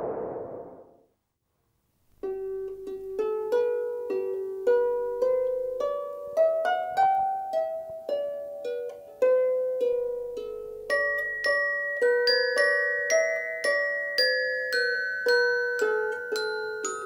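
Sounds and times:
slow plucked melody: 0:02.2 - 0:17.0.

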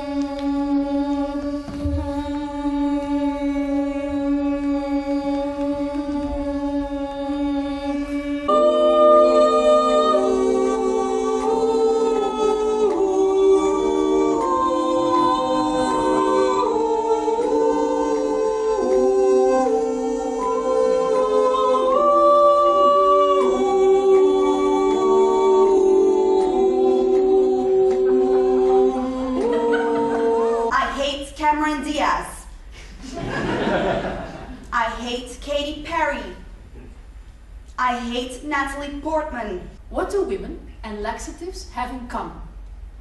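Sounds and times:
women's ensemble singing a cappella: 0:00.0 - 0:30.8.

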